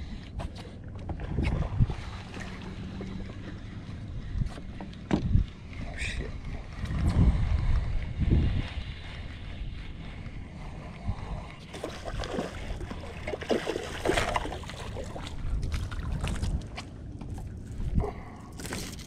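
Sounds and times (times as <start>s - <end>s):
wind rumbling on microphone: 0.0s - 19.0s
fish splashing at water surface: 11.7s - 16.4s.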